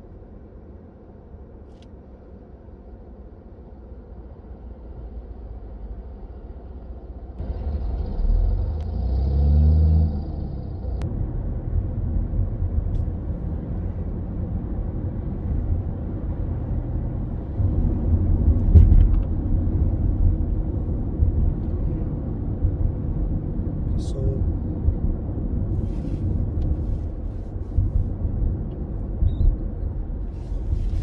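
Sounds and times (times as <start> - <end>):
car engine: 0.0 - 31.0
road noise: 0.0 - 31.0.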